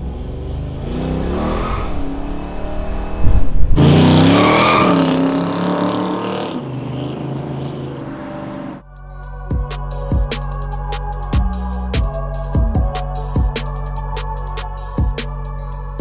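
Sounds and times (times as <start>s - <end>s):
engine revving hard: 0.0s - 8.8s.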